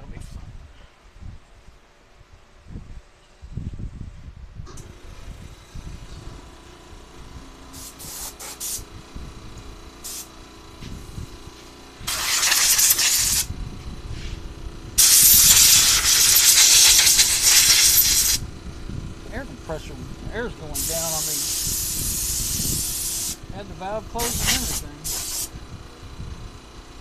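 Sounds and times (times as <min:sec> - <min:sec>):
air blow gun hissing: 0:07.7 - 0:08.9, 0:10.0 - 0:10.3, 0:12.0 - 0:13.5, 0:15.0 - 0:18.4, 0:20.4 - 0:23.6, 0:24.2 - 0:25.6.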